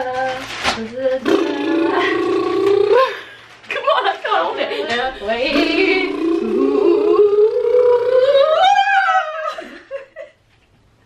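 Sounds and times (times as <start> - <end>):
woman singing a long note: 5.5 - 8.7.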